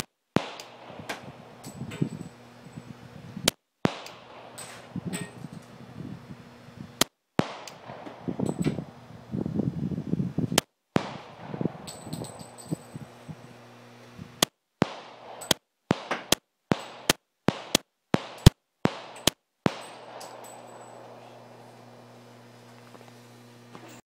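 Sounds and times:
pistol shots: 0.0s - 2.6s, 3.8s - 5.9s, 7.0s - 9.1s, 10.6s - 13.2s, 14.4s - 22.5s.

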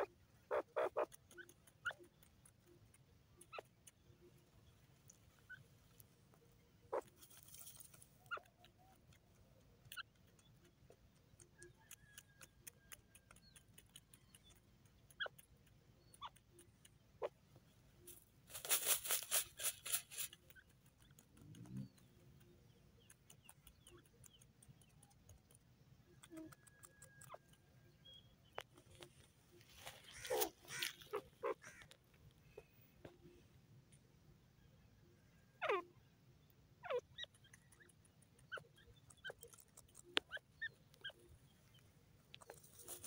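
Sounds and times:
faint chirps and ticks: 0.0s - 18.6s, 19.7s - 43.0s
bird rustling feathers in soil: 7.0s - 8.2s, 18.0s - 20.5s, 28.6s - 32.0s, 42.4s - 43.0s.

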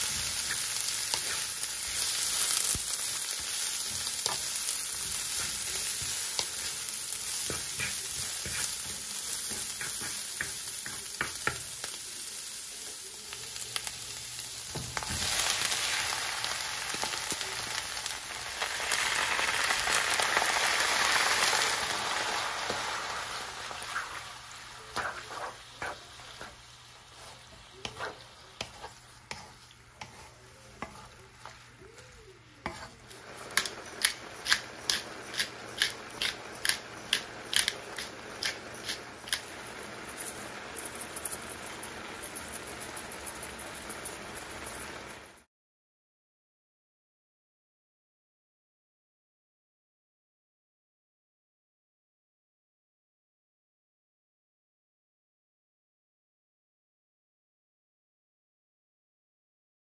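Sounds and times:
vegetables sizzling in a wok: 0.0s - 45.5s
spatula knocking on pan: 27.8s - 31.1s.

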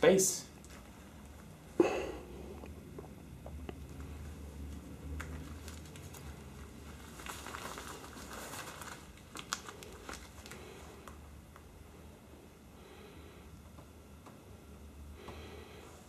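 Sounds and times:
cloth rustling: 5.2s - 10.6s.

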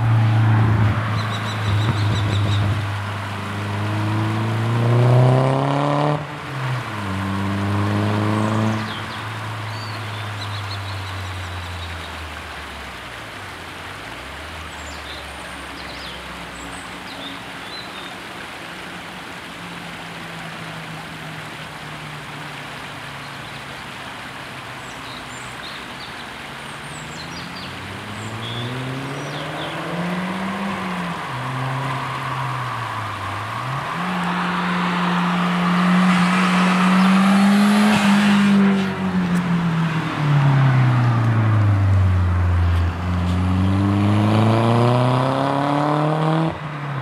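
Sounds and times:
birds chirping: 1.1s - 2.8s, 24.8s - 37.9s.

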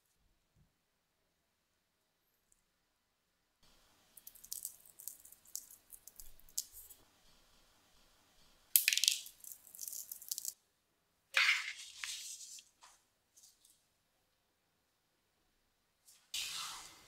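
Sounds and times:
sugar granules pattering on tray: 4.2s - 7.0s, 8.8s - 10.6s.

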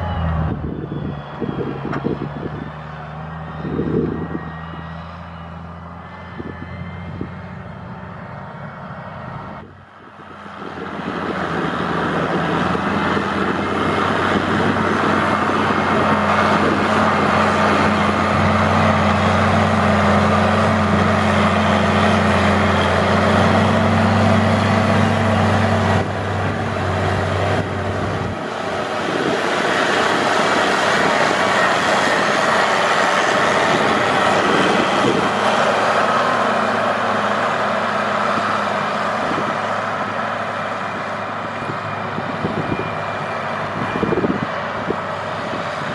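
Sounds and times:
tractor diesel engine under load: 0.0s - 45.9s.

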